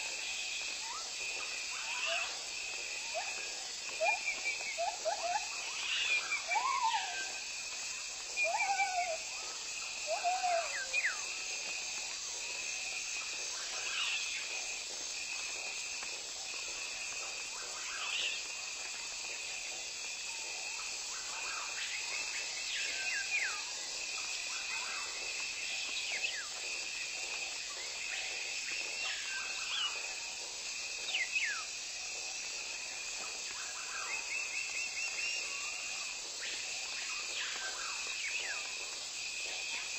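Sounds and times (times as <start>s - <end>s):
high insect drone: 0.0s - 39.9s
lower looping bird calls: 10.0s - 11.4s.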